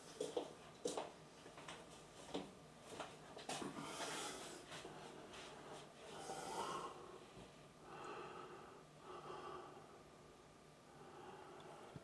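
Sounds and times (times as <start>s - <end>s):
faint breaths: 3.6s - 10.2s, 10.8s - 12.0s.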